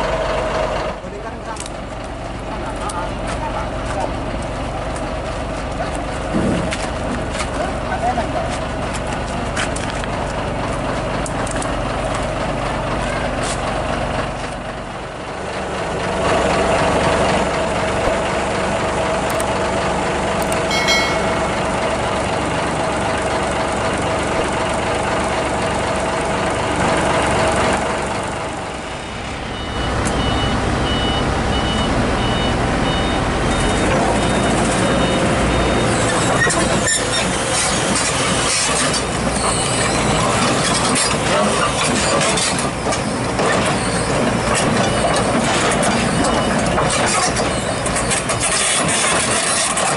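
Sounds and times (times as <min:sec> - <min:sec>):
diesel engines running: 0:00.0 - 0:20.7, 0:21.8 - 0:49.9
reversing alarm beeping: 0:29.0 - 0:36.4.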